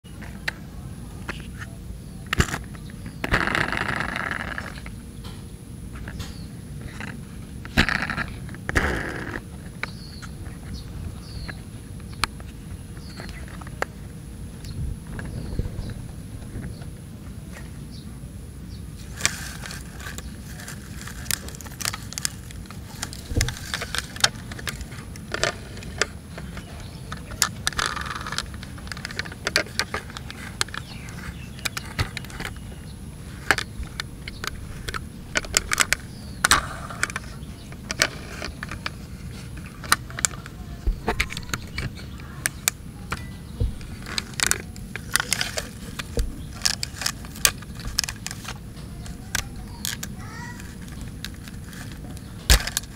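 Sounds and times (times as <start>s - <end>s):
low background rumble: 0.0s - 52.9s
toy trucks clicking and rattling: 19.0s - 32.6s, 33.3s - 52.9s
toy ladder parts clicking: 19.2s - 32.6s, 33.4s - 52.9s.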